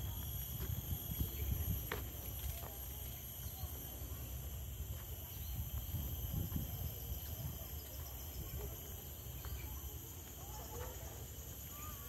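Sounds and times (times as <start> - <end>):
wind on microphone: 0.0 - 2.1, 5.4 - 7.6
insects droning: 0.0 - 12.0.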